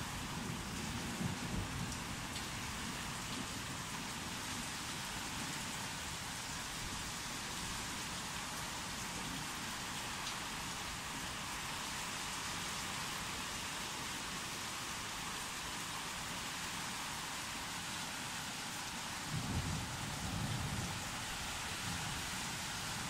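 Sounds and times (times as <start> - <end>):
rain falling: 0.0 - 23.0
low thunder rumble: 19.3 - 21.2.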